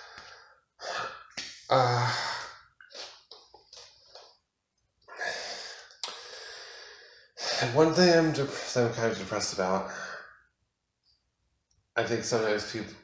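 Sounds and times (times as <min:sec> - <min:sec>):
man breathing: 0:00.0 - 0:03.2, 0:05.1 - 0:07.7
man sighing: 0:00.8 - 0:02.7.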